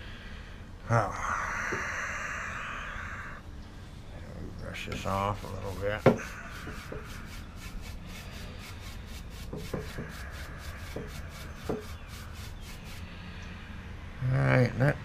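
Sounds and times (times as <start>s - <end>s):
brush sweeping on wood: 4.9s - 13.1s.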